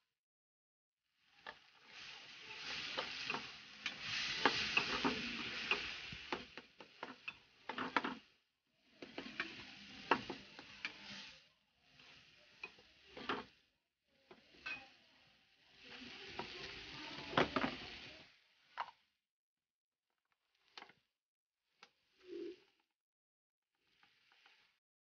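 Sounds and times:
frying sizzle: 1.1 - 19.1, 21.8 - 22.8, 23.8 - 24.8
spatula scraping frying pan: 1.3 - 13.6, 14.3 - 18.9, 23.8 - 24.8.

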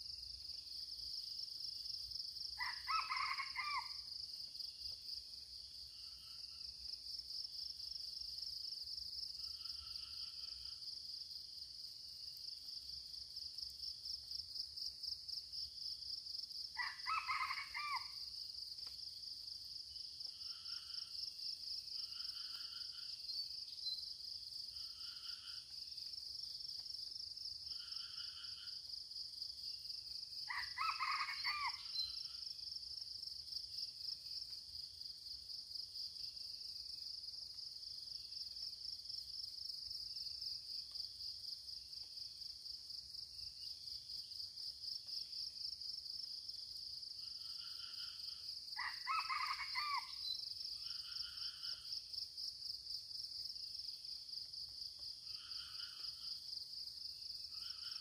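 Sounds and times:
junglefowl crowing: 2.6 - 4.0, 16.8 - 18.1, 30.5 - 31.9, 48.8 - 50.2.

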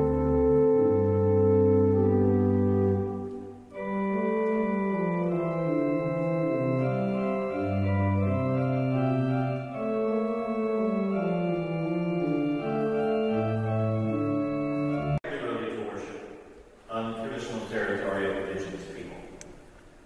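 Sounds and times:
church organ playing chords: 0.0 - 15.9.

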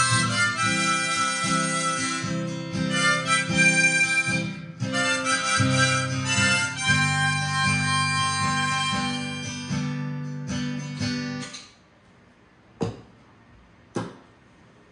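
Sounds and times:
harmonica: 0.0 - 11.5
strummed acoustic guitar: 0.0 - 11.6.

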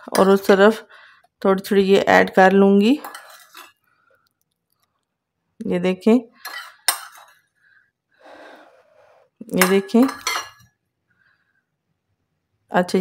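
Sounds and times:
spoon clinking on glass bowl: 9.6 - 10.7.

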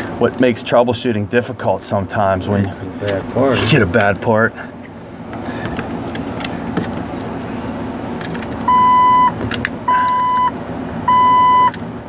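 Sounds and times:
steady low hum: 0.0 - 12.0
dashboard warning chime beeping: 8.7 - 11.8.

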